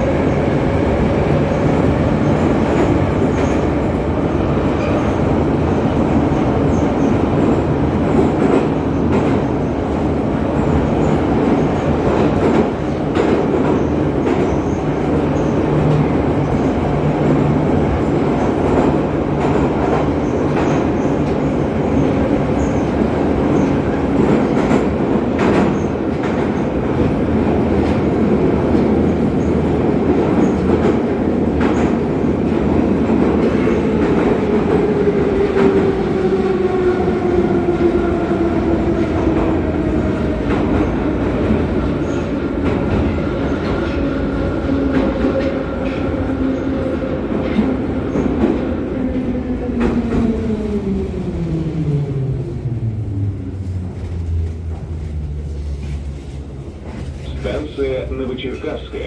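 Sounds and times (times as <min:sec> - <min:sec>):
train wheels clattering on rails: 0:00.0 - 0:35.9.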